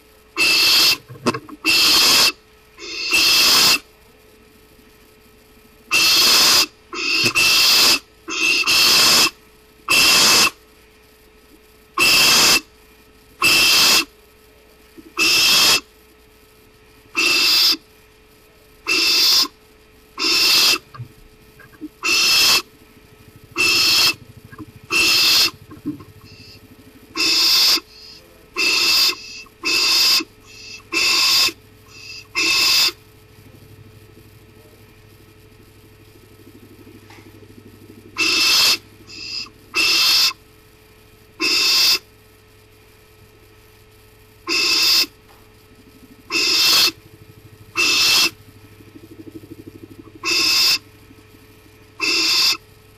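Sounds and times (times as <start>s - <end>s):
barn owl screeching: 0.4s - 3.8s, 5.9s - 10.6s, 12.0s - 12.7s, 13.4s - 14.1s, 15.1s - 15.9s, 17.1s - 17.8s, 18.8s - 19.6s, 20.2s - 21.0s, 21.6s - 33.0s, 36.4s - 40.4s, 41.4s - 42.1s, 44.4s - 45.2s, 46.0s - 52.7s.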